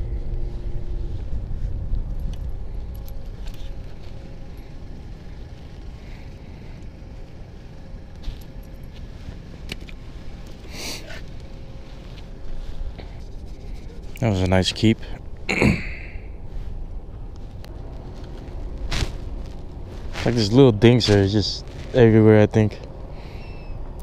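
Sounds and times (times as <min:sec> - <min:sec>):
low rumble: 0:00.0 - 0:24.0
small clicks and rustles: 0:01.9 - 0:14.6.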